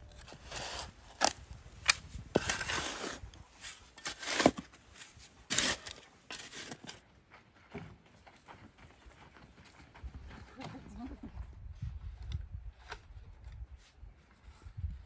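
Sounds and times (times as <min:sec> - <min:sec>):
spade digging stony soil: 0:00.0 - 0:07.0
gravel crunching and spilling: 0:02.3 - 0:07.0.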